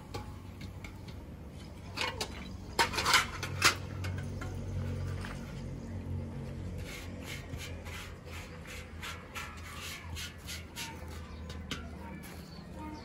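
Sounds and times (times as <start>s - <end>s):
steel dishes scraping: 1.6s - 5.1s, 6.8s - 12.0s.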